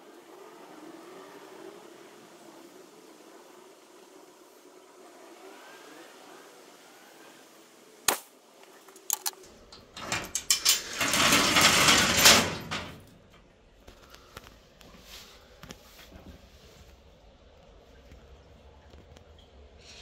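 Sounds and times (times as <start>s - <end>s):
rustling and scraping handling noise: 13.9s - 17.1s.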